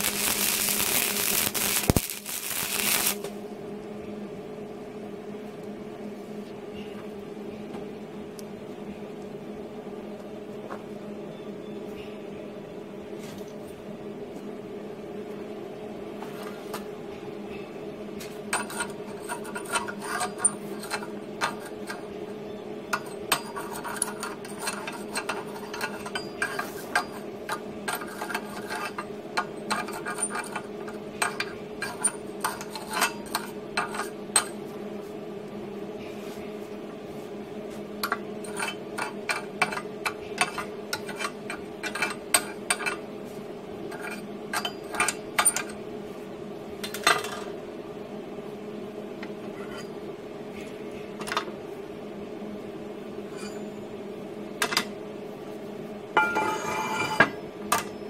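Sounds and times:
wire brush scraping metal: 0:00.0 - 0:03.3
steady hum: 0:00.0 - 0:58.0.

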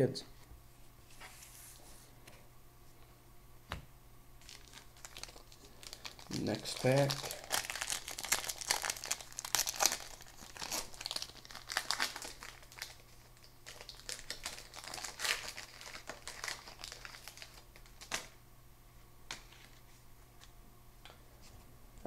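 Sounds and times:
card pack wrapper tearing and crinkling: 0:04.4 - 0:18.3.

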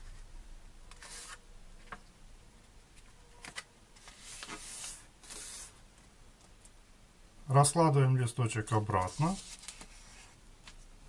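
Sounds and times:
paper rustling and rubbing: 0:00.9 - 0:01.4, 0:03.4 - 0:05.8, 0:08.8 - 0:10.4.

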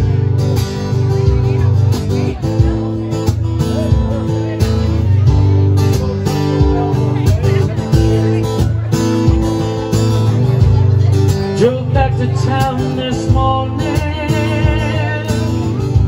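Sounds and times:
acoustic guitar strumming: 0:00.0 - 0:16.0
person singing: 0:11.5 - 0:16.0.

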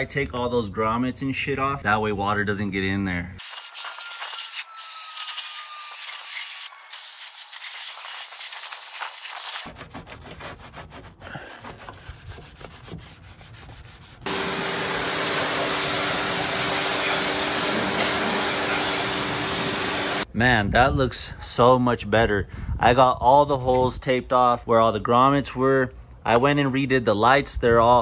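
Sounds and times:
pressure washer spraying: 0:03.4 - 0:09.7, 0:14.3 - 0:20.3
sponge scrubbing: 0:07.0 - 0:14.3.

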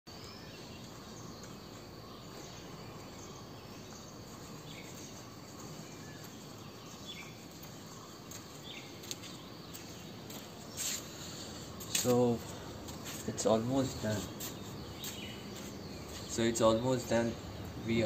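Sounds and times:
bird chirps: 0:00.1 - 0:18.0
outdoor hiss: 0:00.1 - 0:18.0.

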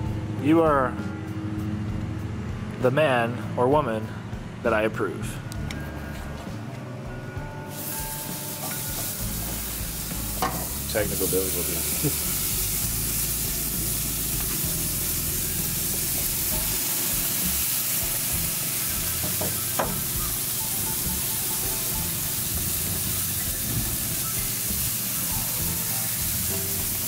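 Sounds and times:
steaks sizzling on a grill: 0:07.7 - 0:27.0.

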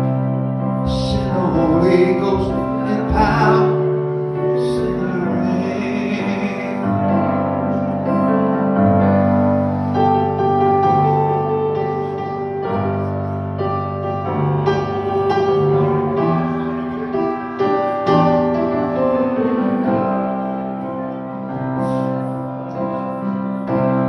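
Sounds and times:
electric keyboard chords: 0:00.0 - 0:24.0
person singing: 0:00.8 - 0:07.9.

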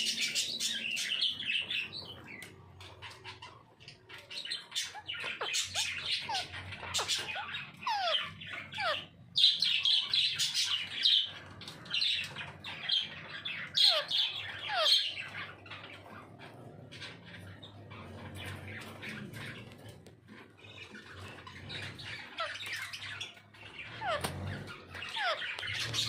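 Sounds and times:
parakeets squawking and chirping: 0:00.0 - 0:26.0.

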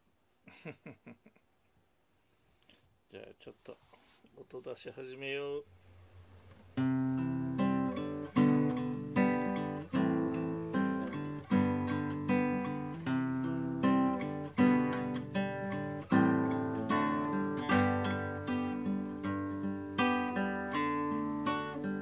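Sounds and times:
acoustic guitar strumming: 0:06.7 - 0:22.0.

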